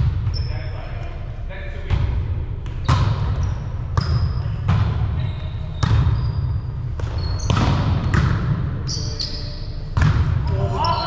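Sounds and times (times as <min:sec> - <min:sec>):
shoe squeaks: 0:00.3 - 0:00.8, 0:02.8 - 0:04.6, 0:05.2 - 0:07.7, 0:08.9 - 0:09.8
volleyball slaps: 0:06.9 - 0:08.7, 0:09.9 - 0:10.8.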